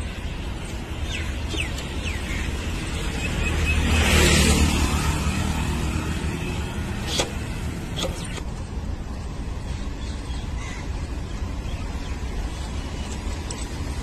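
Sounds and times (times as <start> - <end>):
road traffic rumble: 0.0 - 14.0
vehicle passing by: 2.5 - 8.0.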